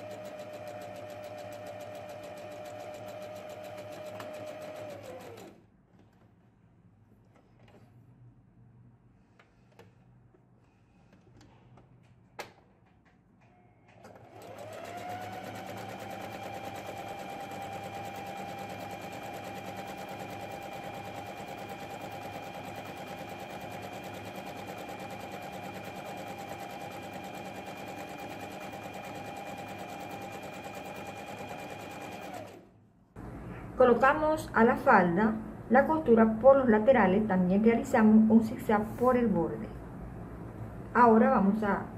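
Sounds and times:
sewing machine running: 0.0 - 5.6, 14.0 - 32.7.

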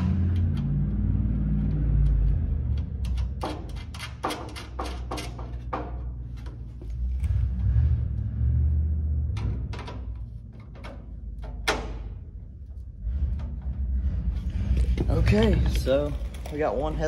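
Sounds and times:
low rumble: 0.0 - 4.3, 5.4 - 17.0
screwdriver and metal parts clicking: 2.0 - 5.8.

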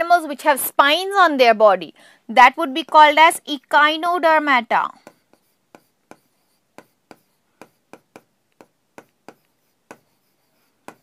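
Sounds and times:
marker pen writing on whiteboard: 2.7 - 3.4, 4.8 - 11.0.

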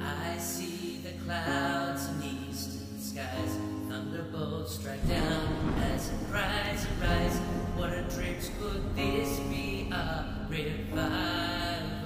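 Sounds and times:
slow worship music: 0.0 - 12.0
deep low end: 5.0 - 12.0.

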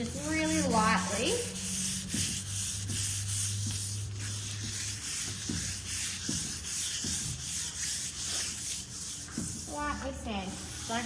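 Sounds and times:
sandpaper rubbing on wood: 0.0 - 11.0.

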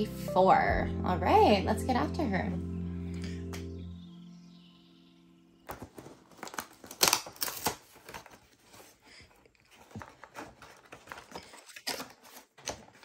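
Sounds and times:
background music: 0.0 - 6.6
cardboard and paper crinkling: 5.6 - 13.0.

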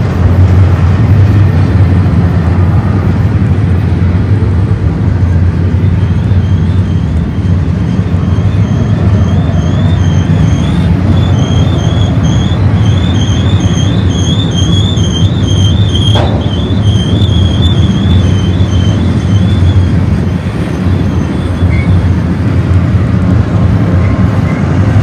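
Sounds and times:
freight train wheels rumbling: 0.0 - 25.0
high wheel squeal: 5.8 - 22.3.

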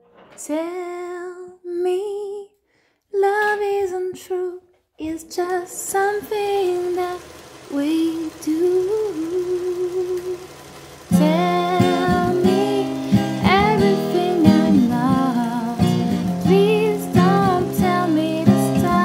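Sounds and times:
woman singing gentle melody: 0.4 - 19.0.

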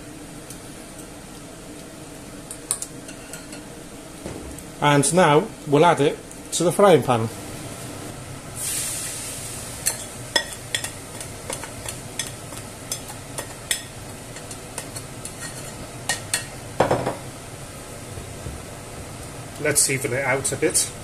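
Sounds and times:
egg sizzling in oil: 8.5 - 16.8
spatula scraping and tapping: 9.9 - 16.5.

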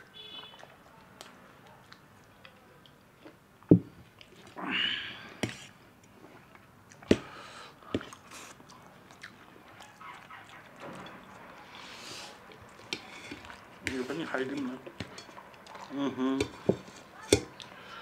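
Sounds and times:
people slurping and chewing: 4.0 - 18.0.

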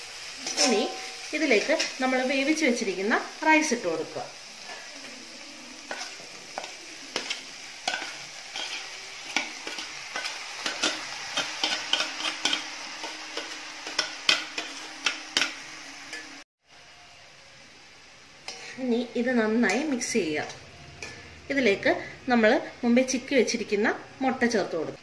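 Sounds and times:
vegetables frying sizzle: 0.0 - 25.0
spoon scraping metal bowl: 5.9 - 16.4.

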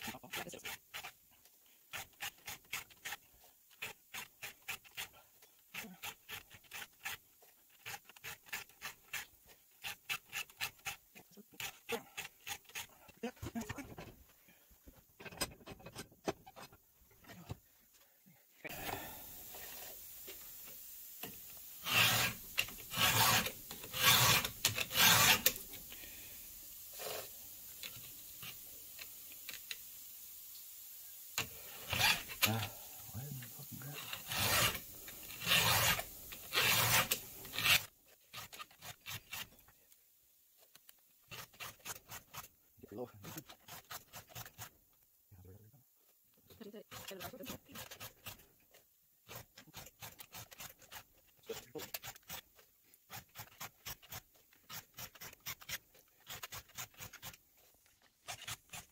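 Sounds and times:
file rasping on chainsaw chain: 0.0 - 14.1, 21.2 - 25.8, 27.0 - 29.1, 31.4 - 39.6, 41.2 - 42.5, 43.2 - 44.8, 46.7 - 48.5, 49.2 - 57.4, 58.1 - 58.9
background hiss: 0.0 - 58.9.

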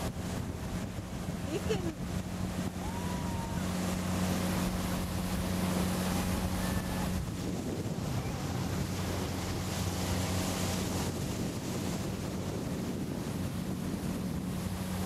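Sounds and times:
motorboat engine humming: 0.0 - 15.0
wind noise on microphone: 0.0 - 15.0.

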